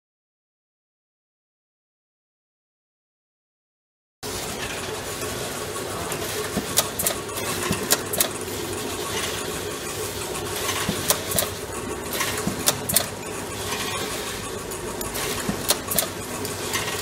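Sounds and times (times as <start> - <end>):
machine humming: 4.2 - 17.0
sharp clicks and clatters: 4.2 - 17.0.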